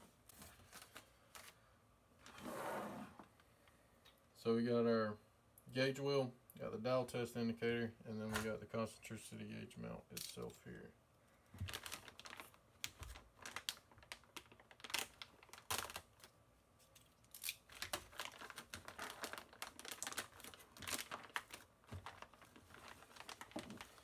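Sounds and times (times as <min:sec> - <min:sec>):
plastic bags crinkling: 0:11.6 - 0:24.0.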